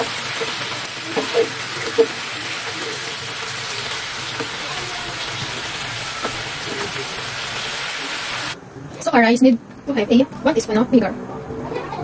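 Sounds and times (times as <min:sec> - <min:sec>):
beef sizzling in a pan: 0:00.0 - 0:08.6.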